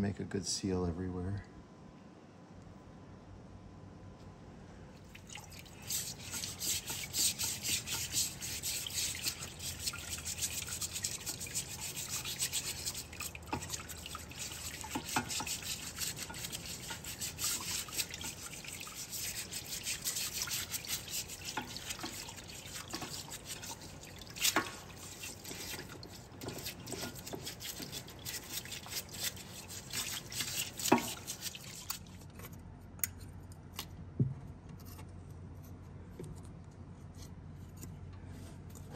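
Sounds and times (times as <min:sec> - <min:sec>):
abrasive rubbing on metal: 0:05.7 - 0:32.0.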